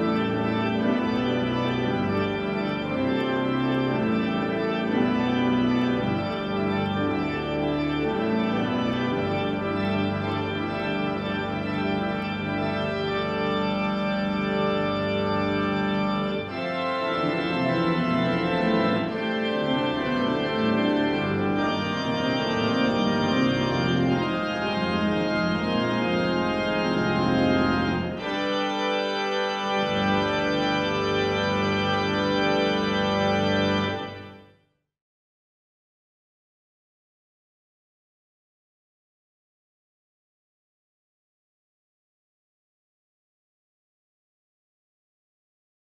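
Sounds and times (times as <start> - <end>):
church organ chords: 0.0 - 34.6.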